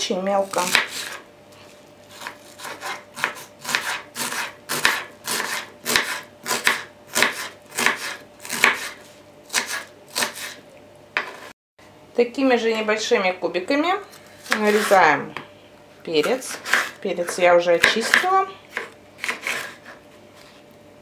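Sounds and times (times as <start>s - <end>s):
knife dicing onion on wooden board: 0.4s - 1.2s, 2.1s - 10.6s, 11.2s - 11.5s, 14.4s - 15.5s, 16.2s - 20.6s.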